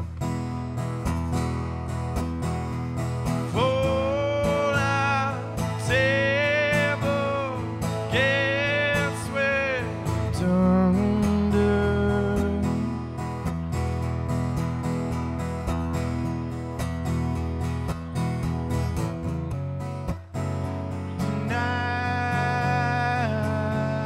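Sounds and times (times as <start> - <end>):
acoustic guitar strumming: 0.0 - 24.0
man singing: 3.4 - 13.1, 21.2 - 24.0.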